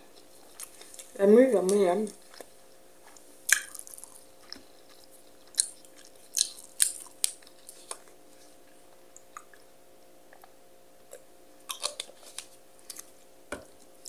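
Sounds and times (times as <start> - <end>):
person chewing food: 0.0 - 1.2, 2.2 - 14.0
wet mouth clicks and smacks: 3.5 - 4.2.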